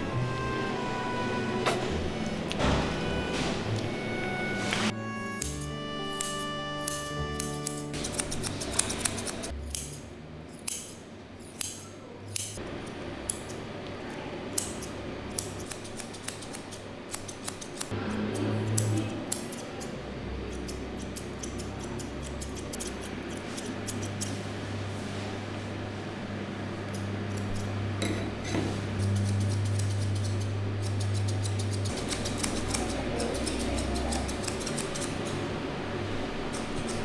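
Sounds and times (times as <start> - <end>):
scissors snipping fur: 5.4 - 12.6, 14.5 - 19.9, 20.5 - 24.4, 26.9 - 28.2, 29.0 - 35.4, 36.5 - 37.0.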